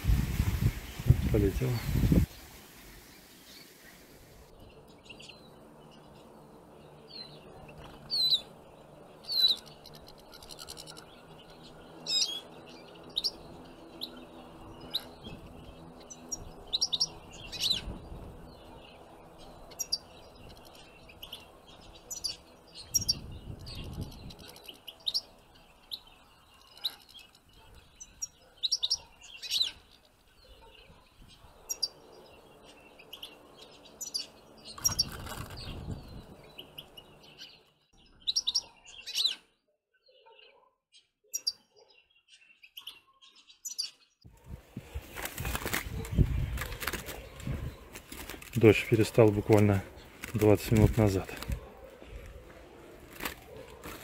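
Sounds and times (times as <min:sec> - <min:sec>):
finches chirping: 0:04.6 - 0:39.4, 0:41.3 - 0:45.0.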